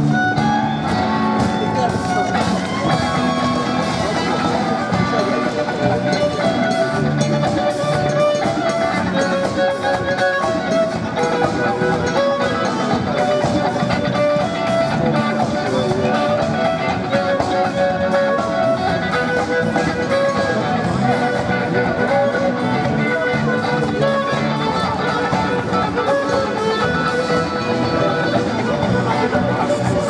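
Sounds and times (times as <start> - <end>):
drum kit with cymbals: 0.0 - 30.0
electric guitar: 0.0 - 30.0
held violin melody notes: 0.0 - 30.0.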